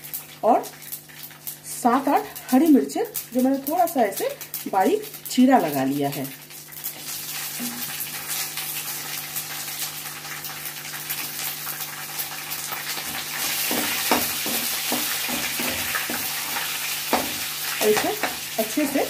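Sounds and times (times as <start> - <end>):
spices sizzling in hot oil: 0.0 - 19.0
spatula knocking against pan: 13.6 - 18.5.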